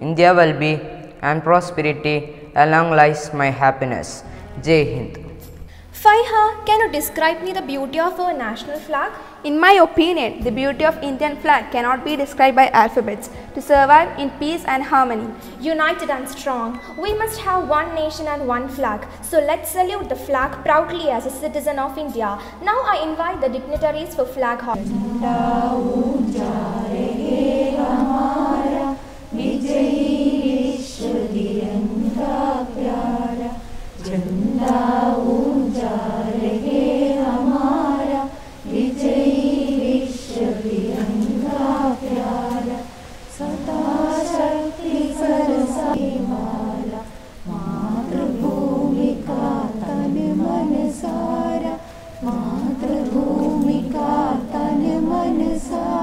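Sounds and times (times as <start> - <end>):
group of voices singing: 24.7 - 56.0.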